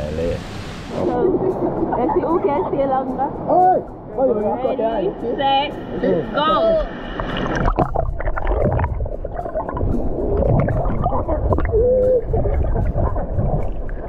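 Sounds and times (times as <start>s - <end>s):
muffled voices: 0.0s - 7.0s
river water splashing: 7.1s - 14.0s.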